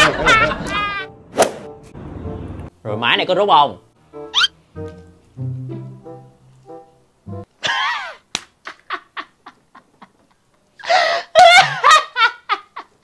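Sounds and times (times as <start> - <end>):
person laughing hard: 0.0 - 1.1, 7.6 - 10.1, 10.8 - 13.0
background music: 0.2 - 7.6.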